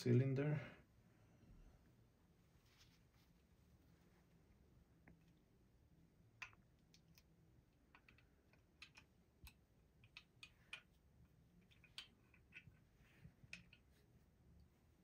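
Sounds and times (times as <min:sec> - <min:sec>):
small metal clicks: 0:06.4 - 0:11.0, 0:11.6 - 0:13.9.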